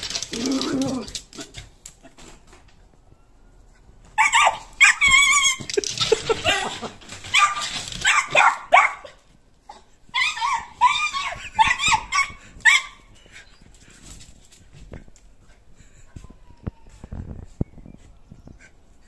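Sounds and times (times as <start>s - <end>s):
puppy yelping and whimpering: 9.7s - 13.1s.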